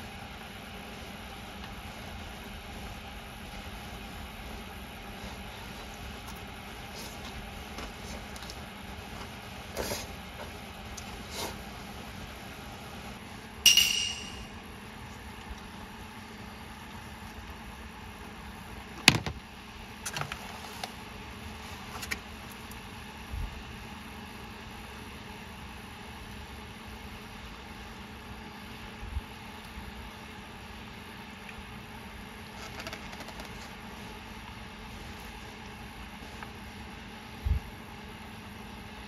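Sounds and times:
ringing metallic clink: 13.7 - 14.5
sharp knock: 13.7 - 14.5.

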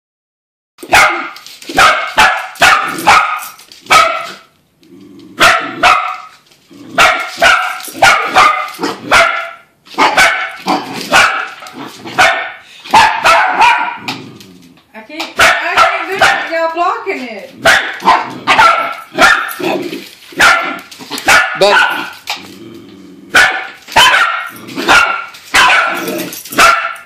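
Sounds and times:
small dogs barking sharply: 0.8 - 4.5, 5.4 - 6.4, 7.0 - 14.1, 15.4 - 16.6, 17.6 - 19.8, 20.4 - 22.2, 23.3 - 27.0.

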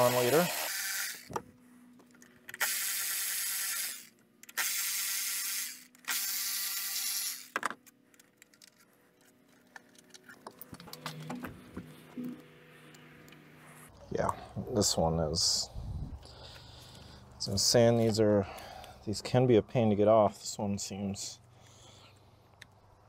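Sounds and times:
power tool running: 0.0 - 1.4, 2.5 - 7.6.

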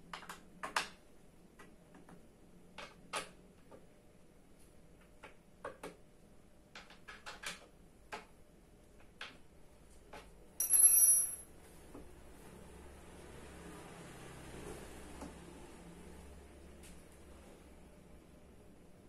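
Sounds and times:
hex key ringing on tile floor: 10.6 - 11.6.

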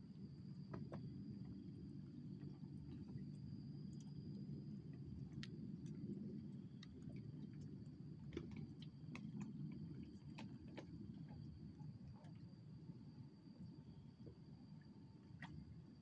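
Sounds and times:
faint ticks and clicks: 2.3 - 12.5.

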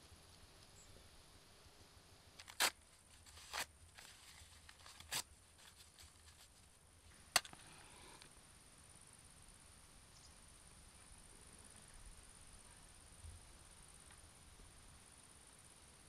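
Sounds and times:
sharp cracks: 2.4 - 5.8, 7.3 - 8.2
match striking: 2.4 - 6.6, 7.3 - 8.3
match hiss: 2.4 - 6.7.

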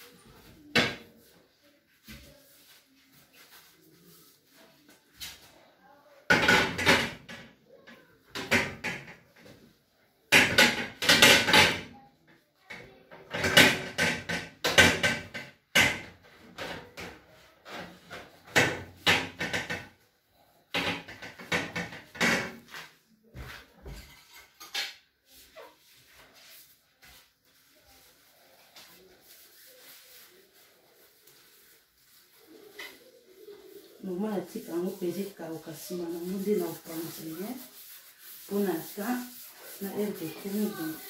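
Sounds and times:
wiping and knocking stove parts: 6.2 - 12.0, 12.7 - 20.0, 20.7 - 41.0.

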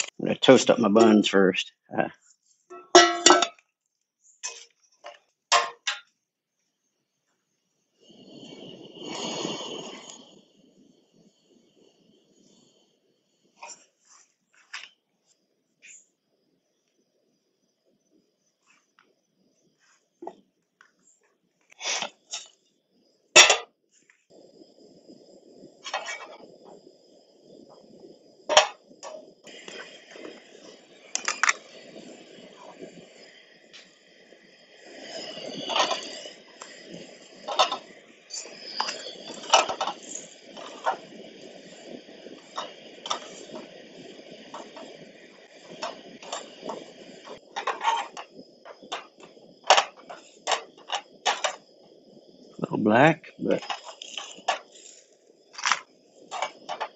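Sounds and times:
gas burner rushing: 0.0 - 1.4, 8.0 - 13.9, 24.5 - 56.9
buns tapping in pan: 2.7 - 3.6, 4.4 - 6.1
sharp metallic clank: 2.7 - 3.6, 5.5 - 6.1, 23.4 - 23.7
spatula scraping pan: 35.5 - 36.3, 42.6 - 43.6, 45.8 - 48.3.

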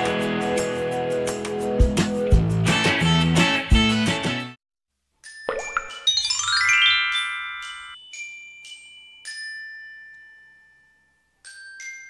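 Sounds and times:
bell-like chime jingle: 5.2 - 12.0.

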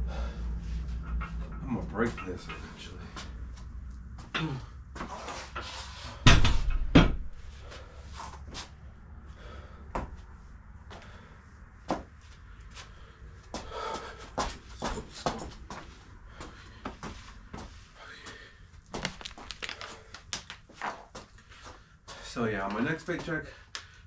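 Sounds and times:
heavy thuds of gym equipment: 6.1 - 7.4.

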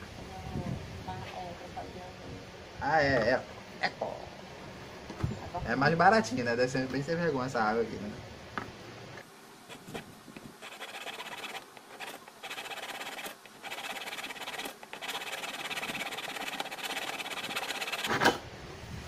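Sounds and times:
hacksaw blade sawing plastic: 9.7 - 10.0, 10.6 - 18.2.

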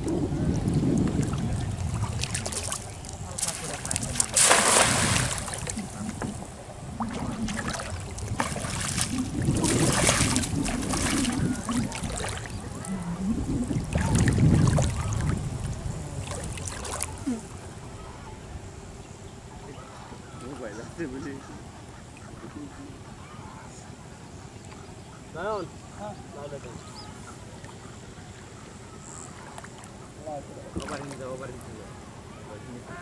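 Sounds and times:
shallow water splashing: 0.0 - 17.4, 29.2 - 31.7.

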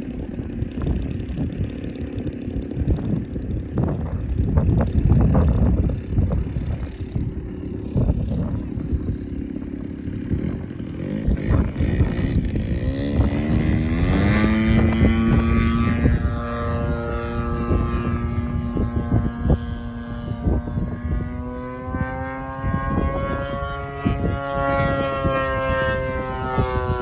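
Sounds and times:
steady low rumble: 0.0 - 21.6
model plane engine revving: 0.0 - 27.0.

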